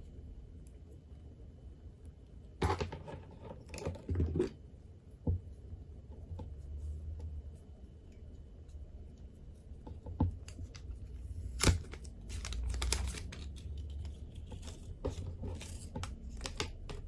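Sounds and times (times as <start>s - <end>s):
cable and wrapping rustling: 6.2s - 17.0s.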